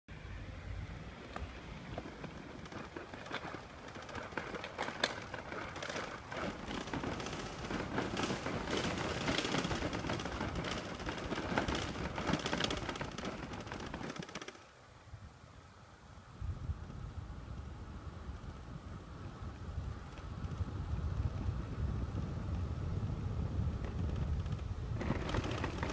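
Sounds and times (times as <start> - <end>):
footsteps: 1.3 - 13.7.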